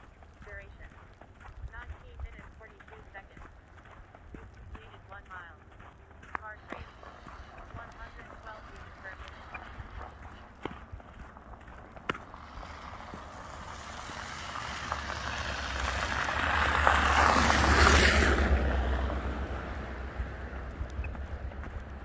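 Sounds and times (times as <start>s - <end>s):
car tyres hissing through snow: 6.8s - 10.6s, 11.2s - 22.0s.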